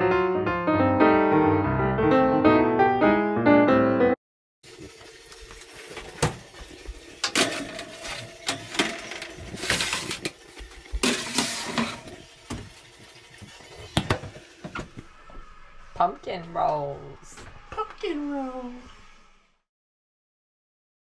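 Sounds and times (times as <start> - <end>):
utensils and dishes knocking: 7.2 - 10.3, 11.0 - 12.6
rustling or scraping bursts: 7.4 - 12.2.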